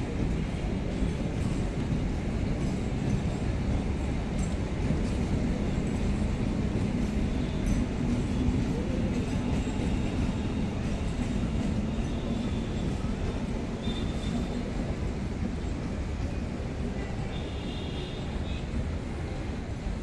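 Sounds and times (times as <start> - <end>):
low train hum: 0.0 - 20.0
train wheels rumbling on rail: 0.0 - 20.0.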